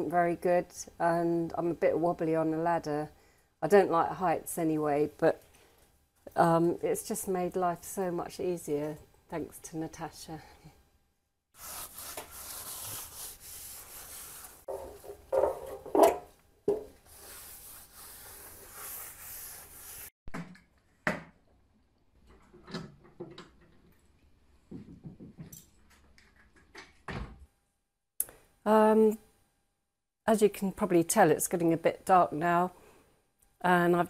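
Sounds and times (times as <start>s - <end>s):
cloth rubbing on wood: 11.6s - 15.3s, 16.7s - 20.1s
metal scaffold knocks and rattles: 14.7s - 16.8s.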